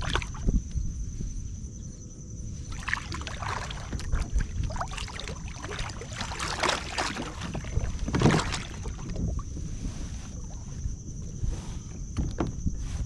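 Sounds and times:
splashing and sloshing water: 0.0s - 0.6s, 2.6s - 12.6s
thump on kayak hull: 6.4s - 9.3s, 12.1s - 12.8s.

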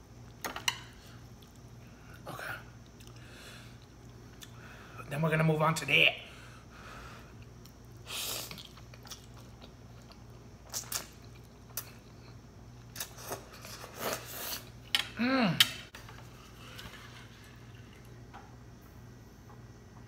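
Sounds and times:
chewing: 8.4s - 14.7s
person humming: 15.2s - 15.8s.

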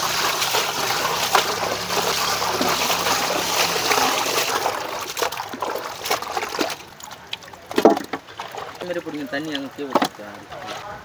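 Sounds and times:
water pouring into a metal basin: 0.0s - 9.9s
hands sloshing in water: 0.0s - 10.8s.

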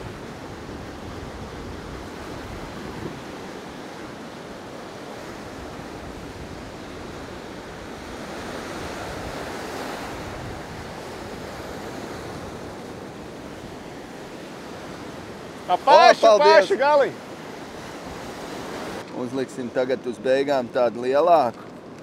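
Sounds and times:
wind on microphone: 0.0s - 15.6s
sea surf washing against shore: 0.0s - 22.0s.

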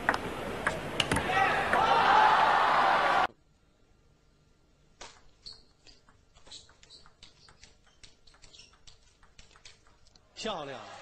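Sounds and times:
table tennis ball clicking: 5.0s - 10.2s.

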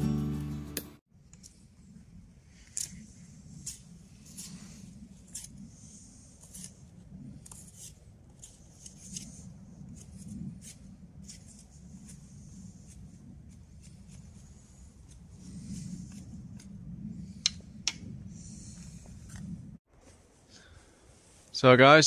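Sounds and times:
low background rumble: 1.6s - 19.8s
stick scratching and scraping: 2.7s - 17.4s.

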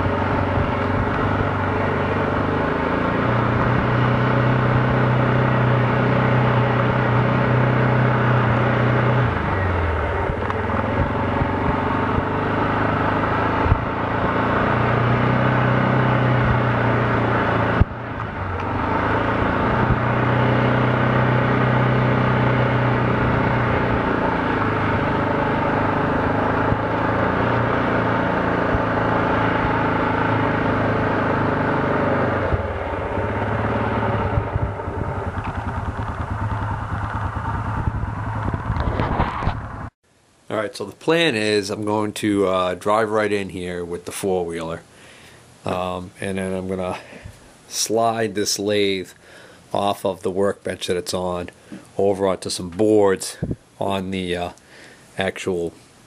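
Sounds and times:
atv engine running: 0.0s - 40.0s.

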